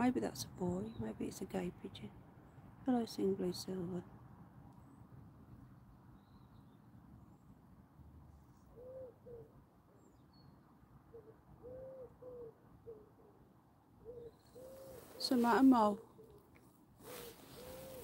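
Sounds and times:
wood pigeon cooing: 8.8s - 9.5s, 11.1s - 13.4s, 14.0s - 16.4s, 17.1s - 18.0s.

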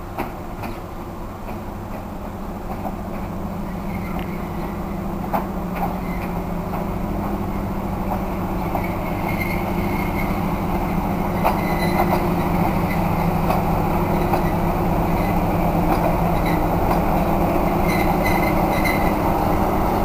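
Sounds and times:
locomotive engine droning: 0.0s - 20.0s
wheel or brake squeals: 3.6s - 6.8s, 8.6s - 20.0s.

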